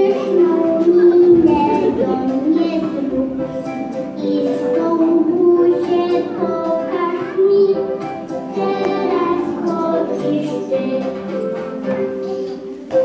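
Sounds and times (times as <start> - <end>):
children singing: 0.0 - 13.0
instrumental backing music: 0.0 - 13.0.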